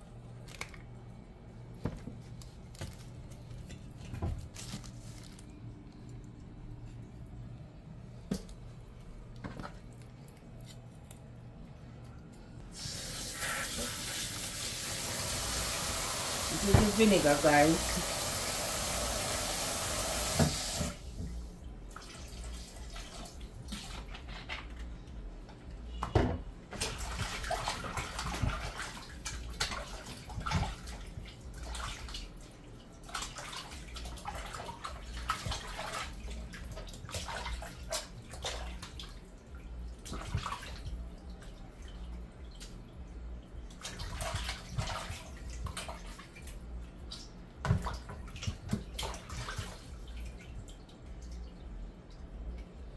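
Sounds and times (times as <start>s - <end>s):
water splashing and sloshing: 0.0s - 52.9s
water running into metal sink: 12.8s - 21.0s.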